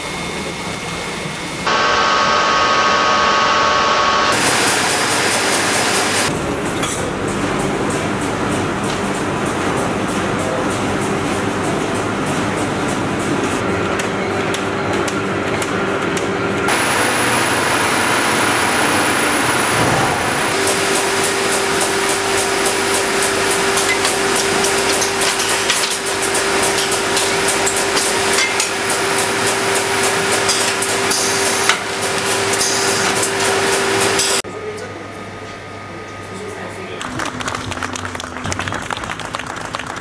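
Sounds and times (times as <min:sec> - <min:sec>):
machine hum with held tone: 0:01.6 - 0:06.3
fast regular machine clacking: 0:20.5 - 0:34.4.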